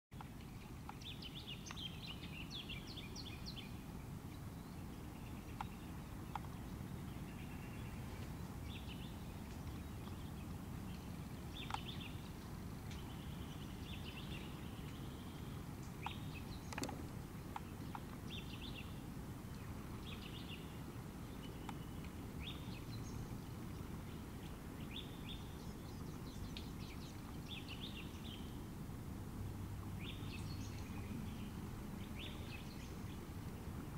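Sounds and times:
faint clicks: 0.2s - 1.9s, 5.3s - 6.7s, 7.9s - 15.1s, 15.8s - 18.6s, 21.4s - 23.9s
birds chirping: 0.2s - 28.6s, 29.8s - 33.9s
low background rumble: 0.3s - 33.9s.

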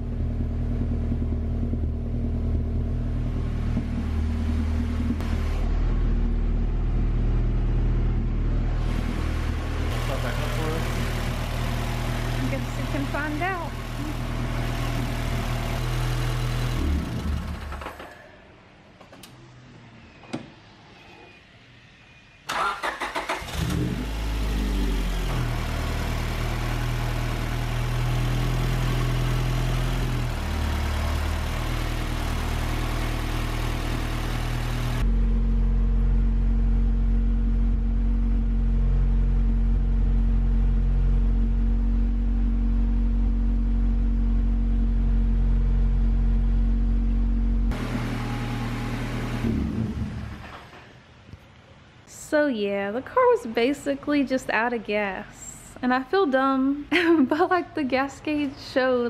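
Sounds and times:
car engine cranking and running: 0.0s - 18.2s, 22.5s - 50.9s.

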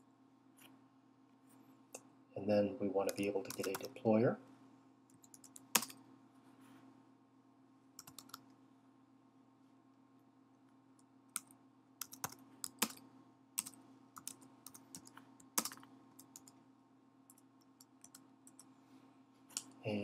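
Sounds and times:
faint low hum: 0.0s - 20.0s
computer keyboard typing: 3.0s - 4.0s, 5.1s - 6.0s, 8.0s - 8.5s, 11.3s - 13.0s, 13.6s - 16.6s, 17.3s - 18.7s.

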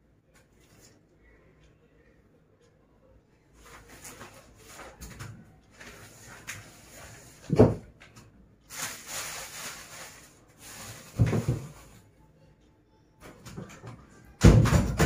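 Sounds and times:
rustling of bedding: 8.7s - 11.9s.

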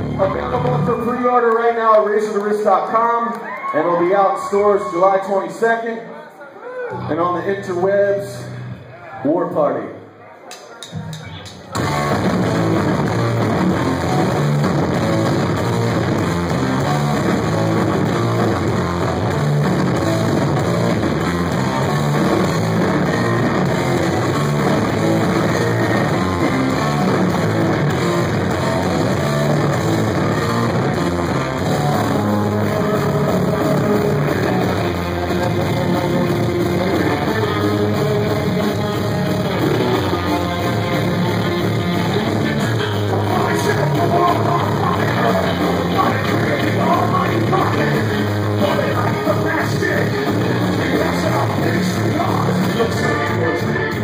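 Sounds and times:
drums: 0.0s - 2.8s, 10.6s - 54.0s
electric guitar: 11.1s - 54.0s.

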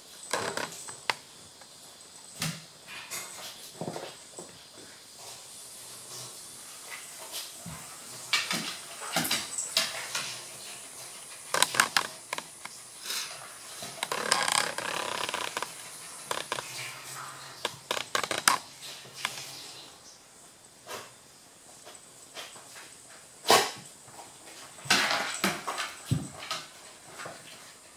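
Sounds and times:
dog claws on wooden floor: 0.3s - 1.2s, 11.3s - 12.9s, 13.7s - 19.6s.

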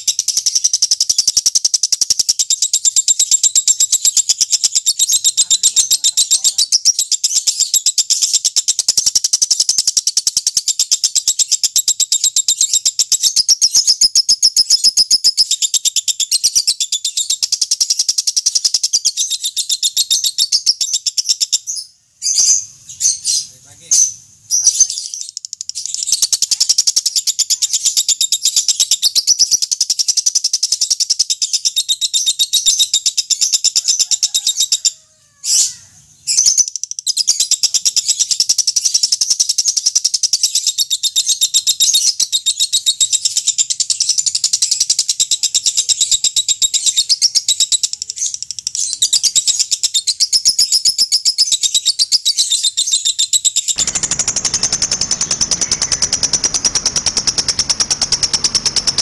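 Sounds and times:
bird chattering trill: 0.0s - 59.0s.

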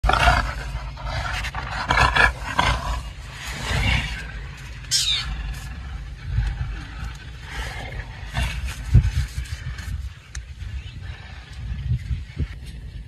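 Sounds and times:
animals growling: 0.0s - 12.6s
high falling animal cry: 4.8s - 5.5s.

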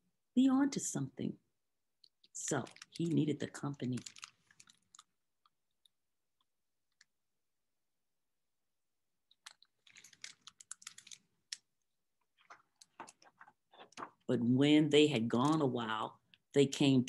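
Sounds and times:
book handling clicks and rustles: 2.4s - 6.0s, 9.3s - 14.3s.

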